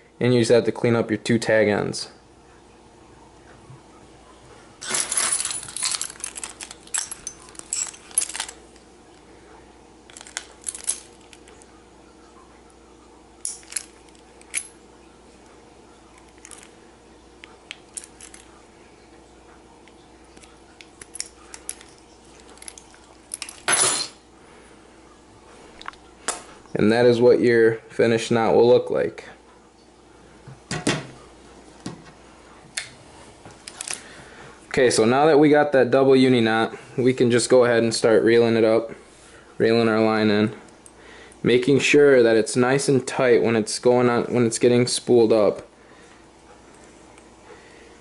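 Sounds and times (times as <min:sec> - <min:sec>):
keys jangling: 0:04.8 - 0:08.6, 0:10.1 - 0:11.5, 0:13.4 - 0:14.7, 0:17.9 - 0:18.5, 0:21.0 - 0:24.0.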